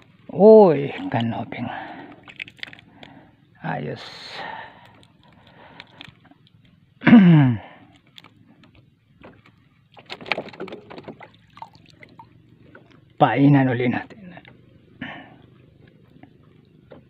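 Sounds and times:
fish handling rustling: 0.8s - 3.2s, 4.5s - 6.8s.

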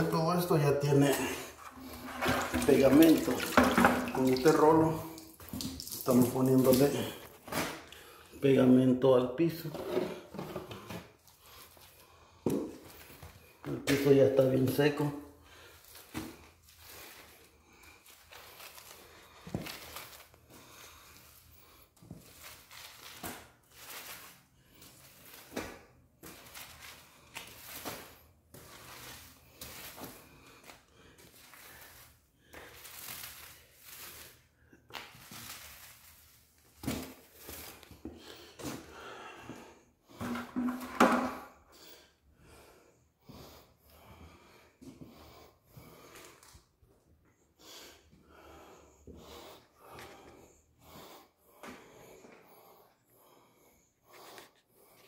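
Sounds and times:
paint roller swishing on concrete: 0.6s - 7.6s, 15.8s - 38.0s.

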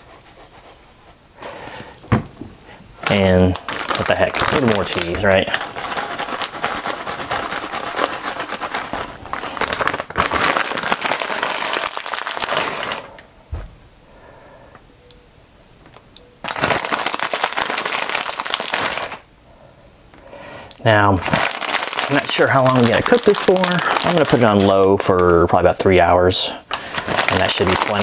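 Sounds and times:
plastic bag crinkling: 3.0s - 13.2s, 16.4s - 19.2s, 20.8s - 25.4s, 26.7s - 28.0s.

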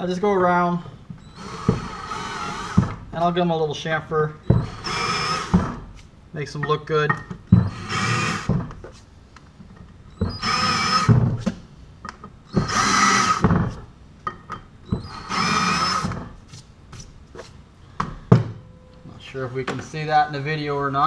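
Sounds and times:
hand drill whining: 1.2s - 3.0s, 4.4s - 5.9s, 7.5s - 8.7s, 10.1s - 11.3s, 12.5s - 13.8s, 14.9s - 16.3s.

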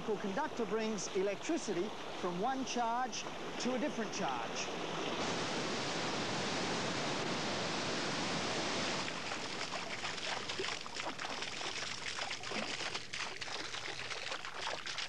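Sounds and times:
river rushing over rapids: 0.4s - 10.6s
fountain spray falling on foliage: 5.2s - 15.0s.

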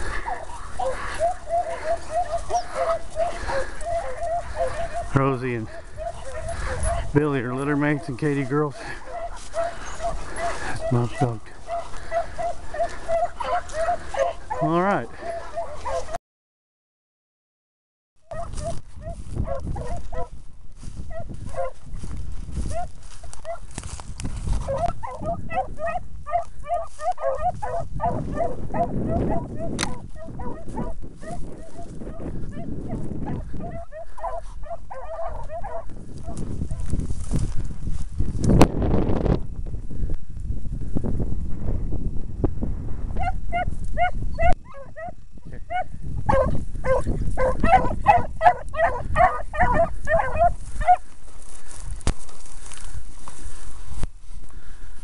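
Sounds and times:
hounds baying: 0.0s - 16.2s, 18.3s - 20.4s, 21.0s - 21.8s, 22.7s - 23.8s, 24.5s - 36.9s, 43.2s - 51.8s.

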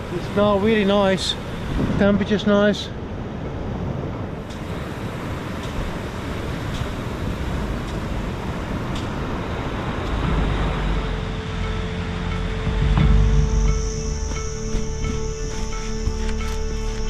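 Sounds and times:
rushing outdoor background noise: 0.0s - 17.0s
steady low tone: 6.8s - 17.0s.

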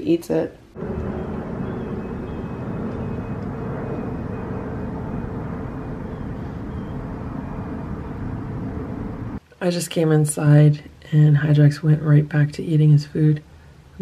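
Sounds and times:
faint hum: 0.7s - 9.4s
low outdoor rumble: 0.7s - 9.4s.

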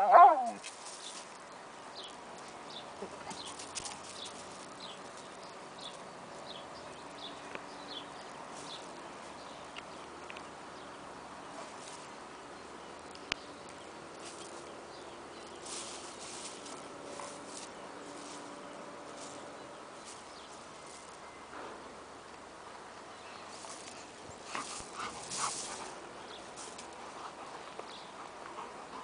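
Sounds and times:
paws scuffing on gravel: 0.4s - 1.4s, 2.5s - 6.5s, 15.4s - 21.2s, 23.5s - 28.6s.

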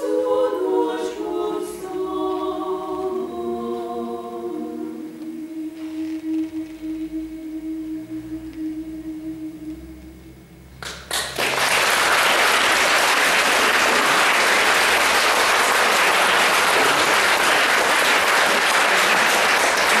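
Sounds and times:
audience applauding: 10.8s - 20.0s.

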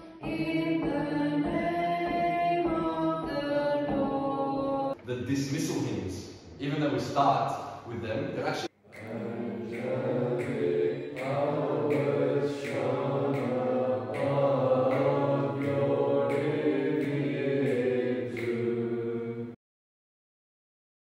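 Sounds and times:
group chanting a hymn: 8.8s - 19.6s.

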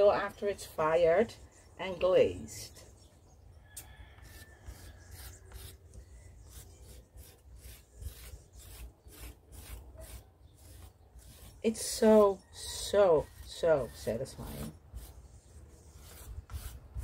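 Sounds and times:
faint scraping on clay: 3.8s - 17.0s.

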